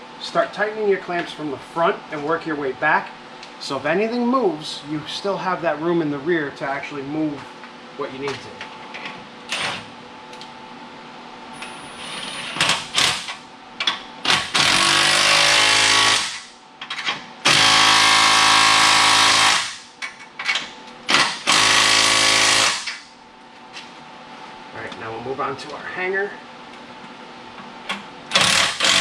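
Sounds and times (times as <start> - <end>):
impact wrench bursts: 14.3 - 16.5, 17.4 - 19.9, 21.1 - 23.0, 28.3 - 29.0.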